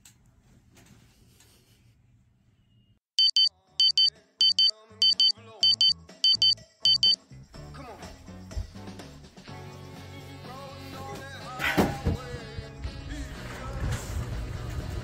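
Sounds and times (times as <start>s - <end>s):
alarm clock double beeps: 3.2s - 7.2s
music: 5.0s - 15.0s.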